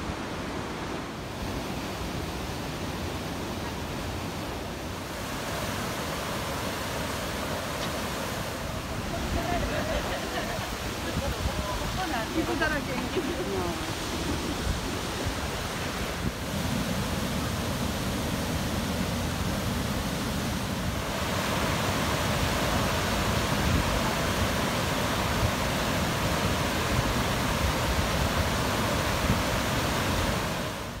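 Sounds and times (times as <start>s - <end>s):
river roaring over weir: 0.0s - 31.0s
wind gusts on microphone: 0.0s - 31.0s.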